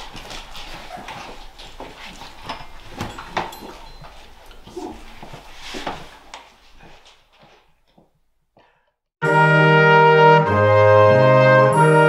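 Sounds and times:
instruments and stands knocking: 1.8s - 4.4s.

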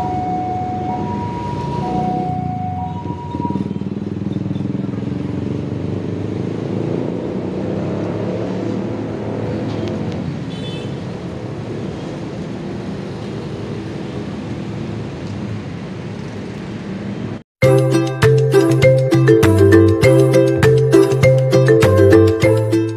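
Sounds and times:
diesel train engine drone: 0.0s - 7.6s.

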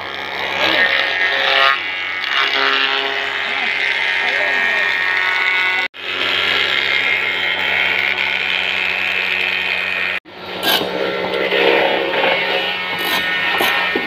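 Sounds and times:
woodworking machine whirring: 0.0s - 14.0s
wooden board scraping drum: 10.6s - 14.0s.

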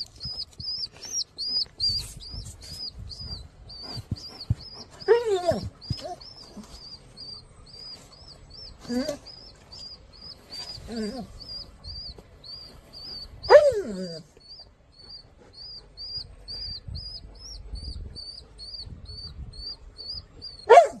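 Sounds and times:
dog whining: 0.0s - 18.8s
fledgling bird cheeping: 0.0s - 20.8s.

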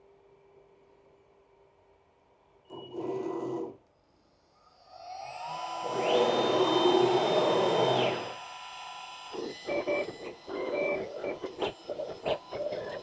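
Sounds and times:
sped-up machine whirs and clicks: 2.7s - 13.0s
router spindle whining: 4.4s - 13.0s.

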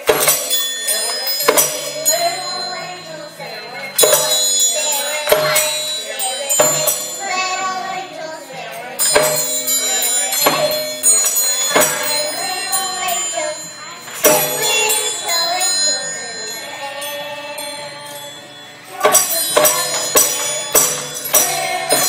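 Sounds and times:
children singing: 0.0s - 22.0s
music: 0.0s - 22.0s
tambourine hits: 0.0s - 22.0s.

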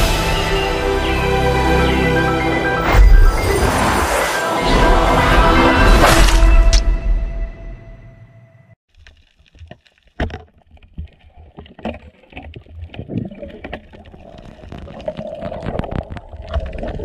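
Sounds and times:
sharp underwater clicks and knocks: 9.0s - 16.9s.

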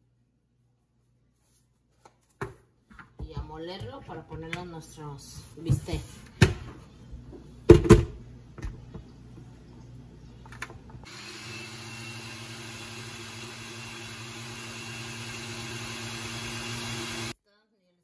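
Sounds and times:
blender motor humming: 11.0s - 17.4s.

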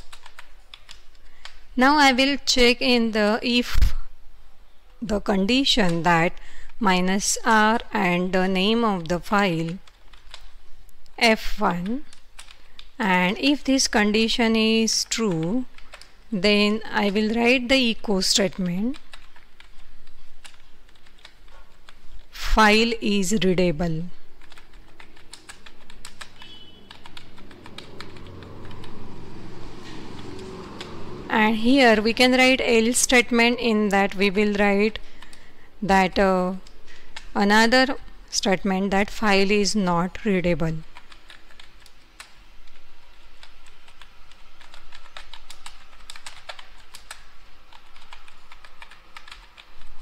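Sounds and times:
keyboard keys clicking: 24.3s - 28.8s, 43.4s - 50.0s.

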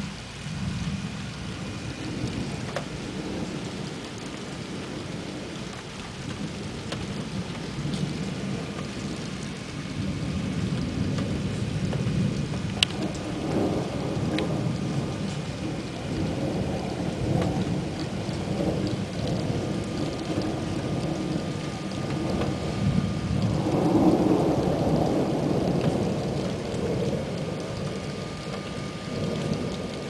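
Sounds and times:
steady rain: 0.0s - 30.0s
thunder rumbling: 0.0s - 30.0s
sharp tick: 11.9s - 13.0s.

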